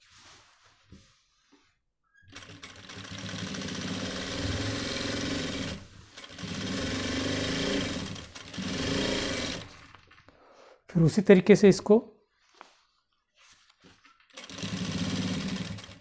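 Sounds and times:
sewing machine stitching: 0:02.3 - 0:09.8, 0:14.3 - 0:16.0.

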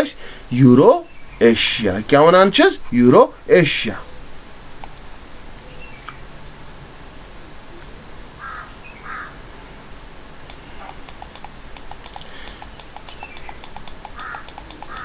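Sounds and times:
mouse scroll wheel clicking: 0:10.4 - 0:15.0.

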